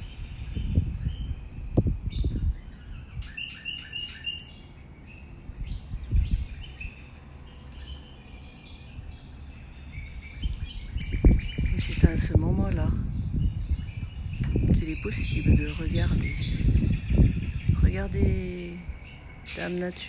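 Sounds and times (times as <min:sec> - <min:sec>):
small birds chirping: 0:00.0 - 0:20.0
low rumble: 0:05.1 - 0:19.6.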